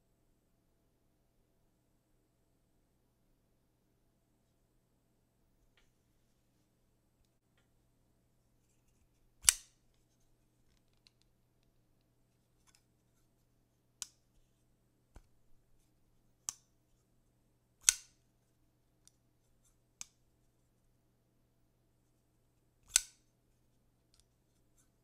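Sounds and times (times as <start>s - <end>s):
folding knife blade clicking: 9.4s - 9.8s, 17.8s - 18.2s, 22.9s - 23.2s.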